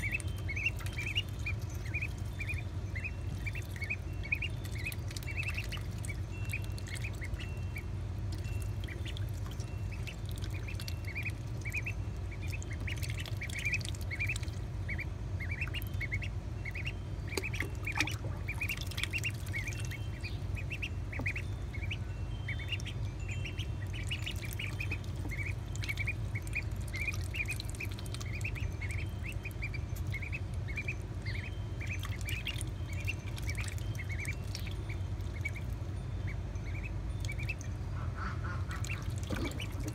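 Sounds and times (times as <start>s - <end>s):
small water splashes: 0.0s - 7.4s, 8.2s - 16.3s, 17.3s - 20.0s, 23.5s - 35.8s, 36.8s - 39.9s
ducklings peeping: 0.0s - 39.9s.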